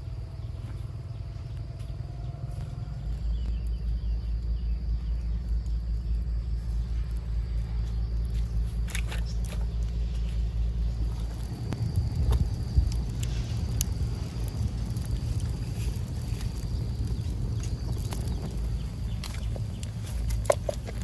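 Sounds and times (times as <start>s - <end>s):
low pulsing rumble: 0.0s - 21.0s.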